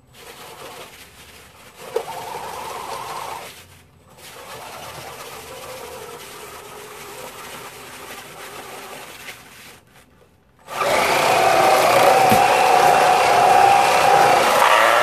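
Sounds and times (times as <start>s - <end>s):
electric motor and tracks whirring: 10.6s - 15.0s.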